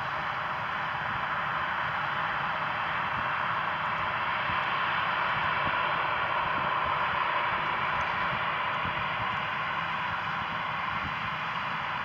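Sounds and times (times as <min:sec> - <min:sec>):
jet engines hissing at taxi power: 0:00.0 - 0:12.0.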